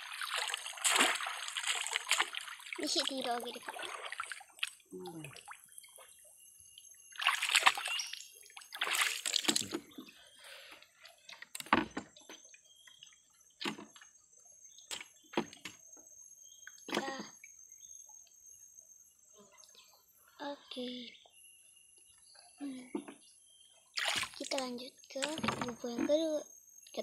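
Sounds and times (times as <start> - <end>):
water splashing off fish trap: 0.0 - 4.4, 7.2 - 8.0.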